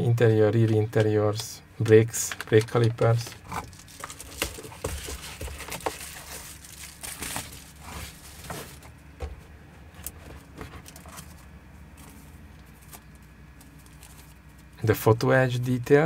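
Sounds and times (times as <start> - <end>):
plastic packaging crinkling: 2.2 - 9.0, 10.0 - 14.7.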